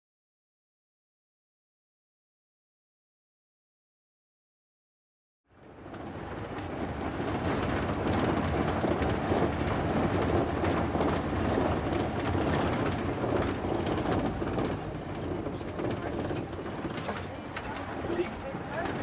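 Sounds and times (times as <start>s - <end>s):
tyres on dirt road: 5.5s - 19.0s
vehicle engine running: 5.6s - 19.0s
faint rattles: 5.9s - 19.0s.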